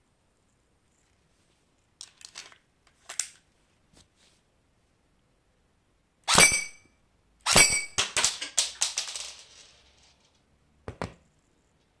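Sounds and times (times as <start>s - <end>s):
airsoft pistol firing: 6.3s - 6.8s.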